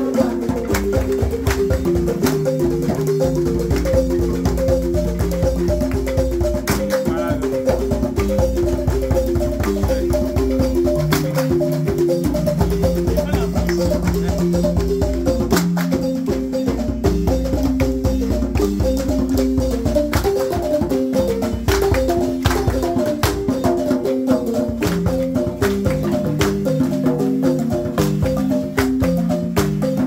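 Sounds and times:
hand-drum and shaker percussion: 0.0s - 30.0s
xylophone-like melody: 0.0s - 30.0s.

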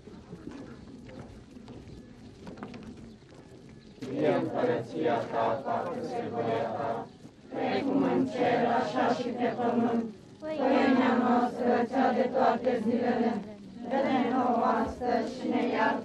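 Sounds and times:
crowd chanting a prayer in unison: 4.0s - 16.0s.

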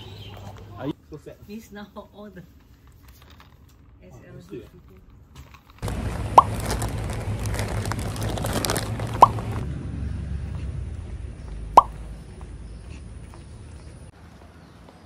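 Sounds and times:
plastic snack packet crinkling: 5.7s - 9.6s.

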